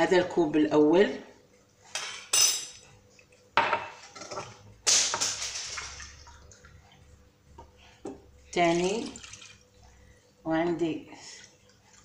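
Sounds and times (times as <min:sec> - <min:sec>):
water splashing into a saucepan: 0:04.9 - 0:06.7, 0:08.7 - 0:09.7.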